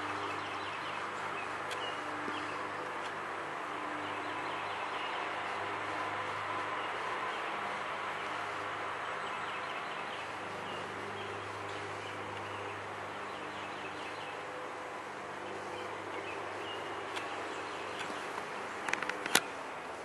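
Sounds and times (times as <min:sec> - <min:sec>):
sharp click: 0:18.8 - 0:19.5.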